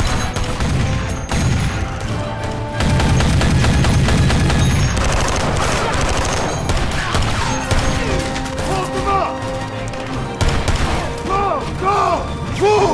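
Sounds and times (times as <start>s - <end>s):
automatic gunfire bursts: 2.7s - 8.3s.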